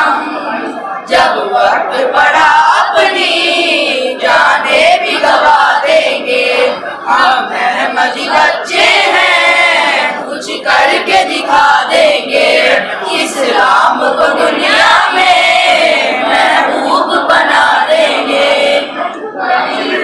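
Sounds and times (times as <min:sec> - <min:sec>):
boys singing an anthem: 0:00.0 - 0:20.0.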